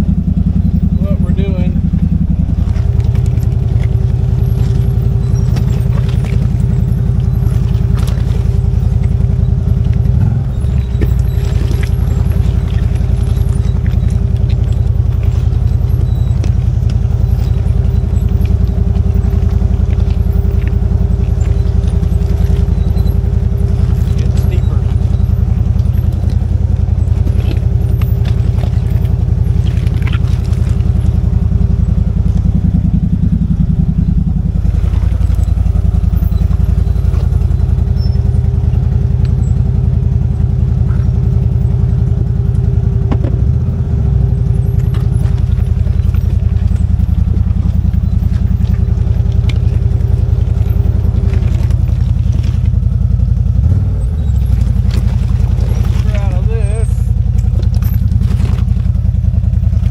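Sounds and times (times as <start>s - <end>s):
constant whine: 0.0s - 59.9s
off-road vehicle engine running: 0.0s - 59.9s
clicks and clatter: 57.0s - 59.9s.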